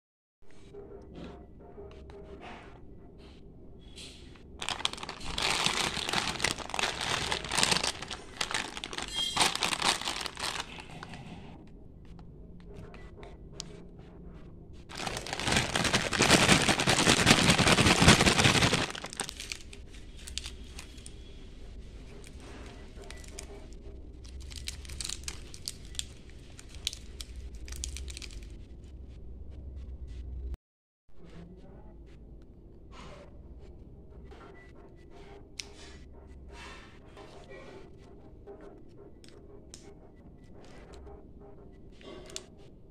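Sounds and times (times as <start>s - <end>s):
plastic candy packet crinkling: 4.6s - 11.2s, 14.9s - 21.1s, 23.1s - 23.5s, 24.2s - 28.5s.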